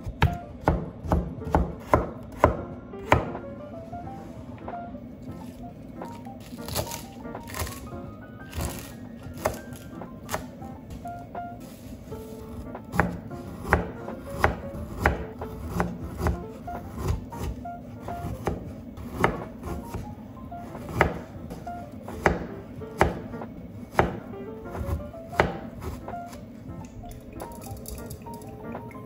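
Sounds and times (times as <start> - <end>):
knife chopping on cutting board: 0.0 - 3.4, 8.5 - 11.0, 12.3 - 20.0, 20.8 - 26.4.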